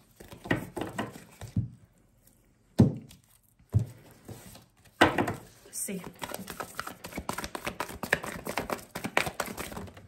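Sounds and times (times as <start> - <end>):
cards being shuffled: 4.3 - 10.0.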